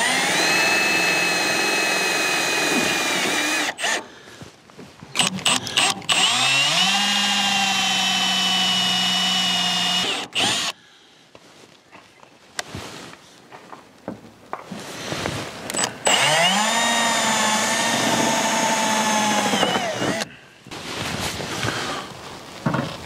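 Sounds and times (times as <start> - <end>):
cordless drill driving screws: 0.0 - 4.1, 5.2 - 10.8, 15.7 - 20.3.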